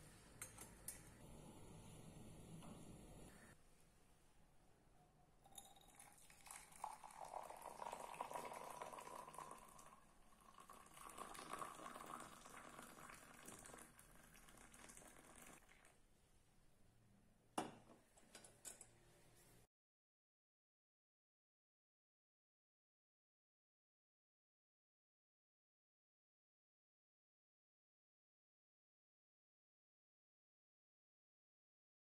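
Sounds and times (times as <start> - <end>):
glass clink: 5.5 - 8.5
liquid pouring into glass cup: 5.5 - 16.0.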